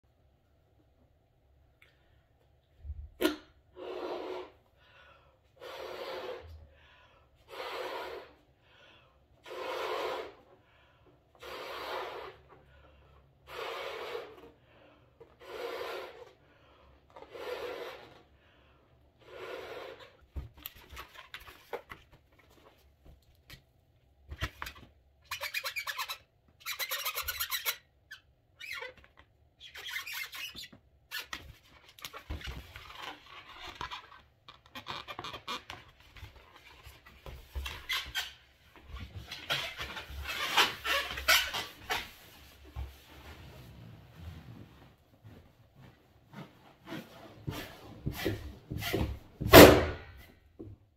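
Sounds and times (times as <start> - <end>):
balloon squeaking and rubbing: 3.2 - 4.7, 9.4 - 10.5, 11.4 - 12.6, 13.4 - 14.6, 15.3 - 16.4, 19.2 - 22.1, 24.3 - 49.9.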